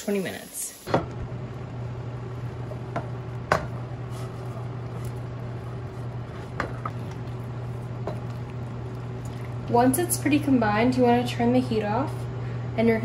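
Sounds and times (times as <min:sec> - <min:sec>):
steady low hum: 0:00.8 - 0:13.0
utensil scraping frying pan: 0:03.0 - 0:08.6.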